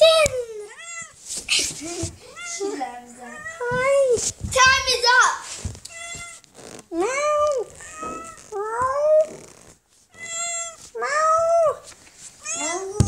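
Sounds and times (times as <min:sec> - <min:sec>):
cat meowing: 0:00.6 - 0:01.2, 0:02.3 - 0:03.9, 0:05.9 - 0:09.5, 0:10.1 - 0:13.0.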